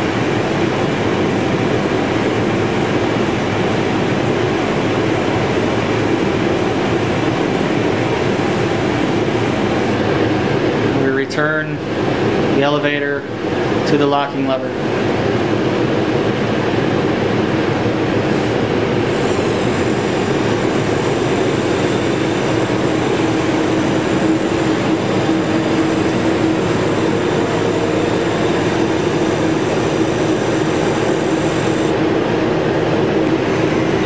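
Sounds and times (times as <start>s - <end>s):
machine hum and rush: 0.0s - 34.0s
thin high whine: 0.0s - 34.0s.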